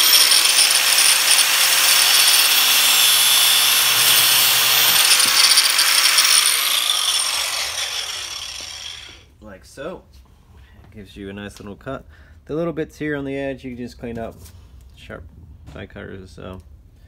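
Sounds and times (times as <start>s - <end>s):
angle grinder cutting steel: 0.0s - 9.2s.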